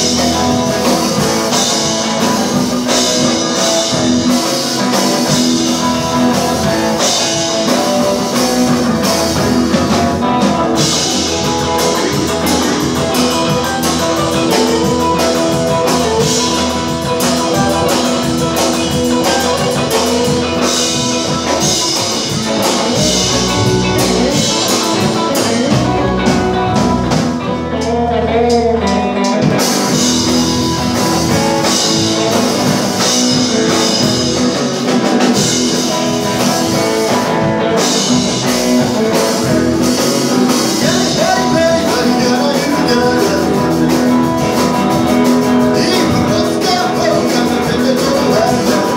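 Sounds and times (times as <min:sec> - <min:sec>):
rock and roll band playing: 0:00.0 - 0:48.9.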